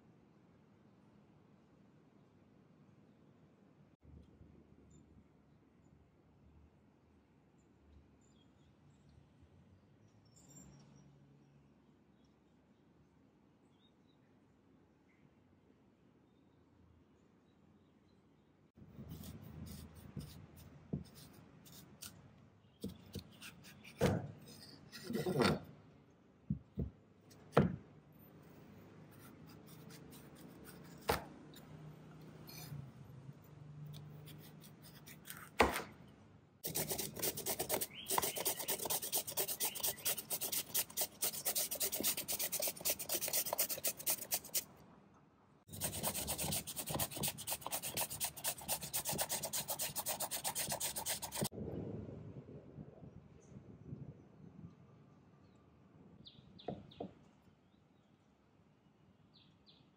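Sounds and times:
knife cutting taro: 34.0s - 35.8s
hand grater rasping: 36.7s - 44.6s, 45.7s - 51.5s.

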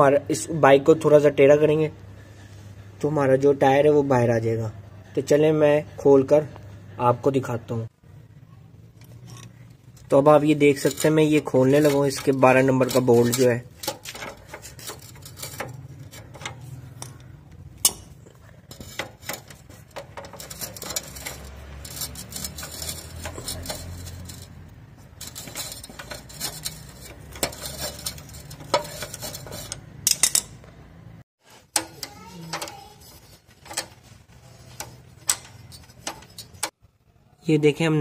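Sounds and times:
socket wrench ratcheting: 10.7s - 18.1s, 18.7s - 24.6s.

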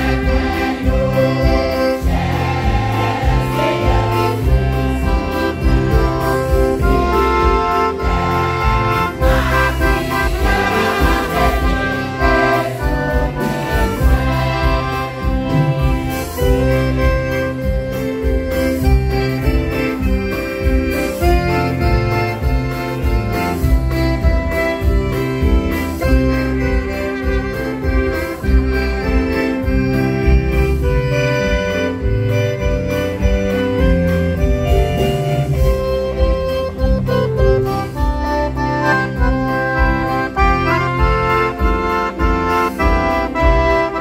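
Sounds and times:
women's choir singing a hymn: 0.0s - 7.2s, 7.9s - 16.4s
live band with keyboard and bass: 0.0s - 44.0s.

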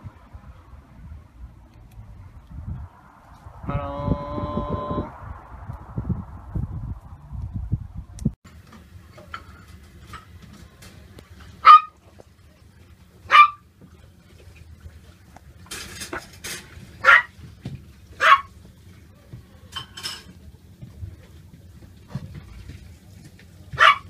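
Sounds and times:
puppies yipping: 13.3s - 13.6s, 18.2s - 18.5s, 23.8s - 24.0s.

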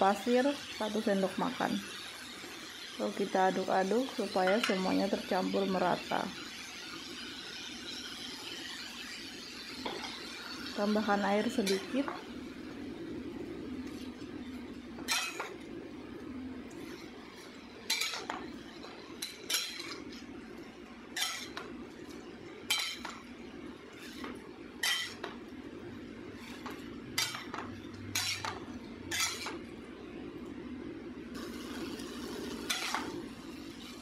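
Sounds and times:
steady low hum: 10.5s - 34.0s.

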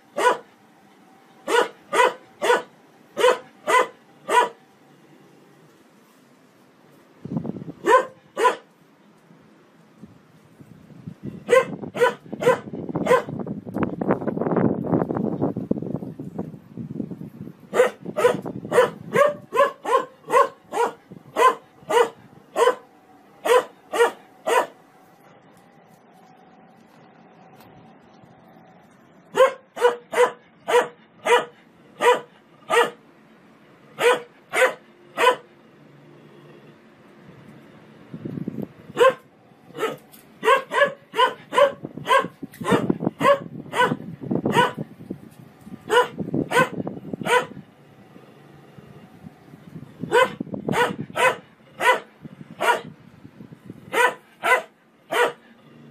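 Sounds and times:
washing machine hum: 0.0s - 36.0s, 36.8s - 55.9s
dog barking: 0.2s - 0.5s, 1.5s - 4.6s, 7.8s - 8.7s, 11.5s - 13.4s, 17.7s - 24.8s, 29.3s - 33.0s, 34.0s - 35.5s, 39.0s - 44.8s, 45.9s - 47.6s, 50.1s - 52.9s, 53.9s - 55.4s.

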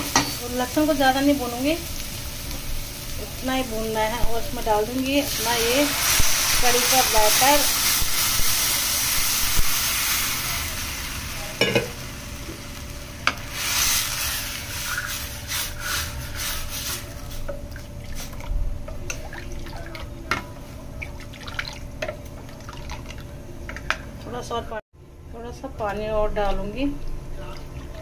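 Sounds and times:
batter sizzling in hot oil: 0.0s - 19.6s
ladle stirring liquid: 17.5s - 24.2s.

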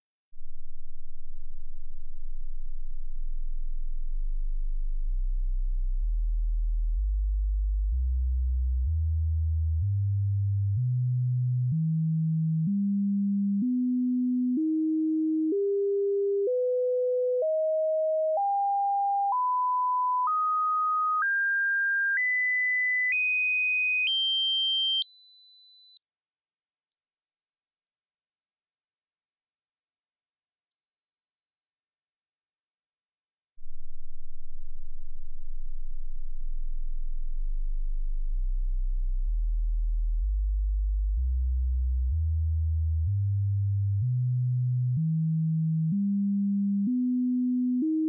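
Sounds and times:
stepped sine sweep test tone: 0.4s - 12.8s, 27.0s - 30.8s, 33.6s - 47.9s.

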